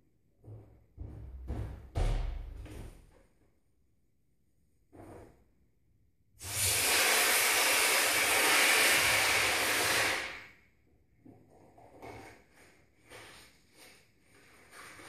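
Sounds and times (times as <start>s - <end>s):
air hissing out of balloon: 6.4s - 10.6s.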